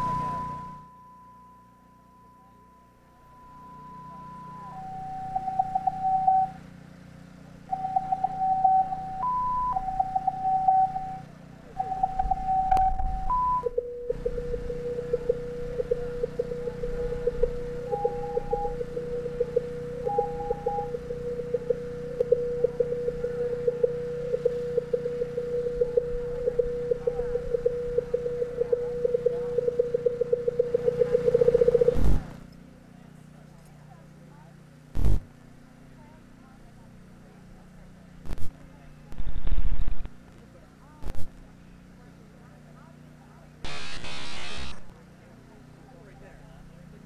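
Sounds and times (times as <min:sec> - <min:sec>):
electronic sine tones: 0:00.0 - 0:06.6, 0:07.7 - 0:32.4, 0:39.2 - 0:40.1, 0:43.6 - 0:44.9
faint low hum: 0:00.0 - 0:06.6, 0:07.6 - 0:35.3, 0:36.0 - 0:47.0
low drone: 0:12.7 - 0:31.9.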